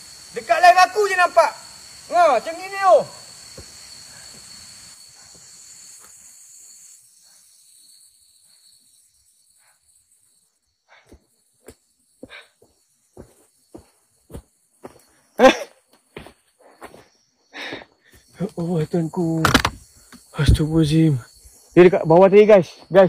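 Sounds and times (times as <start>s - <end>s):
faint hiss: 0.0s - 10.9s, 18.3s - 23.0s
night insects chirring: 0.0s - 23.0s.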